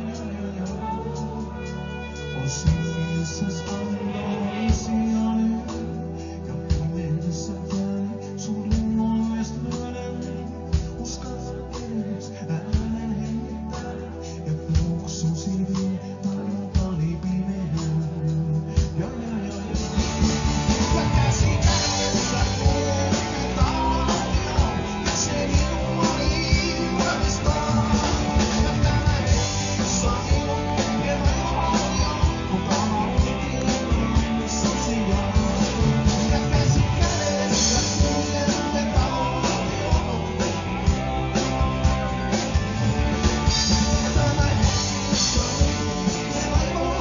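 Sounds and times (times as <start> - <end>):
electric guitars: 0.0 - 47.0
drum-kit beat: 17.8 - 47.0.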